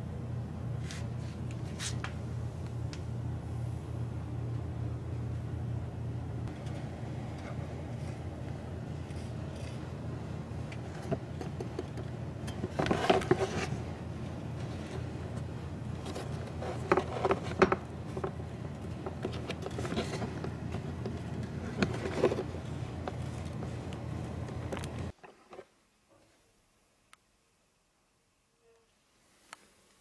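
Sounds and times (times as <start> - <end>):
steady low hum: 0.0 - 25.2.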